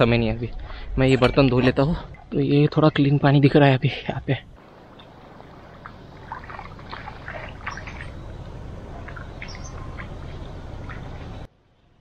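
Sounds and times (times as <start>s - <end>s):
steady low rumble: 4.3s - 11.5s
birds squawking and chirping: 4.8s - 11.5s.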